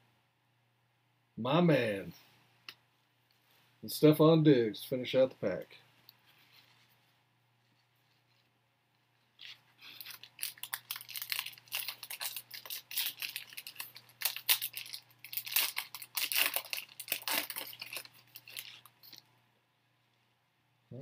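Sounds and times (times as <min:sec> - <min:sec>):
plastic wrapper crinkling: 0:09.3 - 0:19.3.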